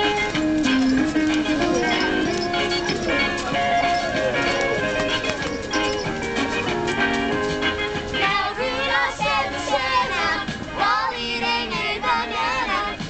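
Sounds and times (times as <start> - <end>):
christmas song backing track: 0.0 - 13.0
children singing: 8.1 - 13.0.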